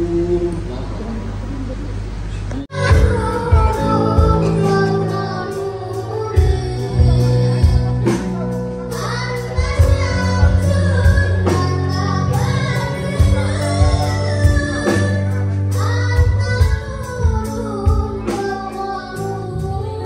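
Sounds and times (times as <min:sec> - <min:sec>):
bass guitar: 0:01.3 - 0:20.0
person singing: 0:02.5 - 0:20.0
keyboard playing: 0:02.6 - 0:20.0
drums playing a steady beat: 0:02.8 - 0:19.8.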